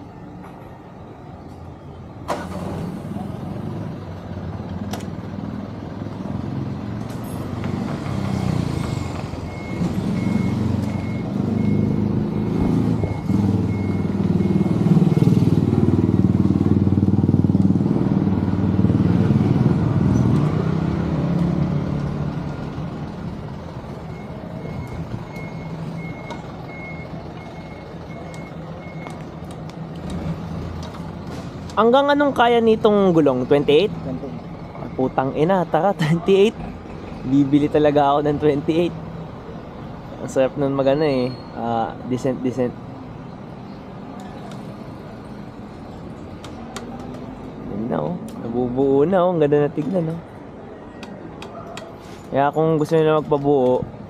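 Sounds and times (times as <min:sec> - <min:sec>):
heavy vehicle engine rumbling: 0:00.0 - 0:54.0
high electronic beeps: 0:09.0 - 0:15.6.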